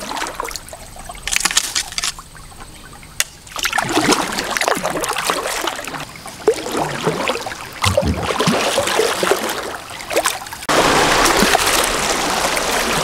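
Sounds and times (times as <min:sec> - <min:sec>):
river water trickling and gurgling: 0:00.0 - 0:13.0
small water splashes: 0:00.0 - 0:13.0
rush of fast-flowing current: 0:10.7 - 0:13.0.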